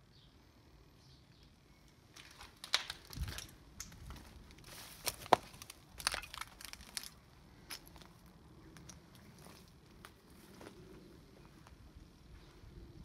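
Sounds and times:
footsteps crunching on broken glass: 2.2 - 8.2.

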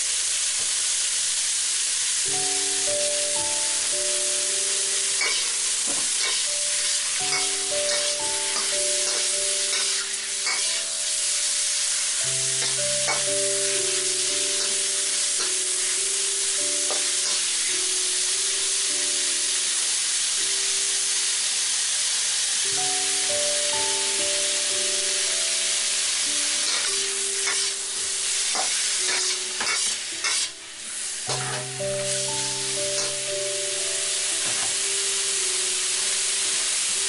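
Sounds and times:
food sizzling in hot oil: 0.0 - 37.0
soft background music: 0.0 - 37.0
metal utensil scraping wok: 5.2 - 10.9, 26.5 - 30.6, 31.3 - 33.3.

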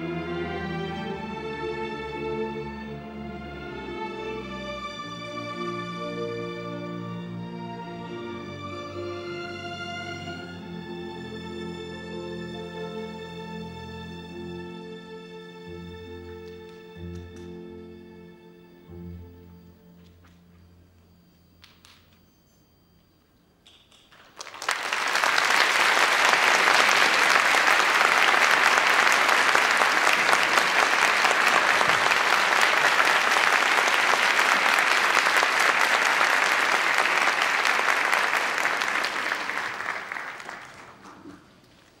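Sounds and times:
audience applauding: 24.1 - 42.0.

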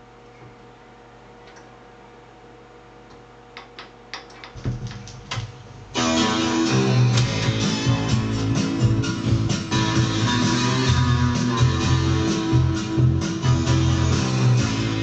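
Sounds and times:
record player hum: 0.0 - 15.0
vinyl clicks and crackles: 3.6 - 5.6
loud guitar music: 6.0 - 15.0.

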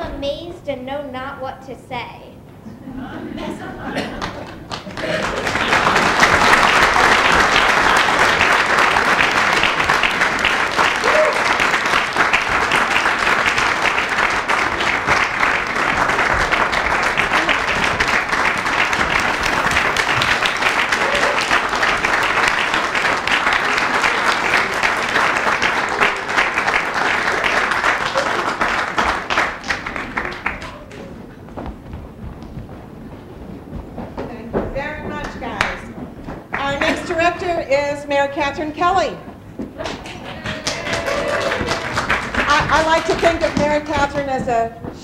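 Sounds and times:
audience applauding: 4.0 - 31.5, 39.7 - 44.3.

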